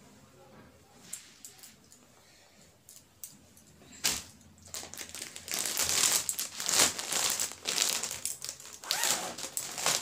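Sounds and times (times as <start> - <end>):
fabric and wrapping rustling: 3.8 - 10.0.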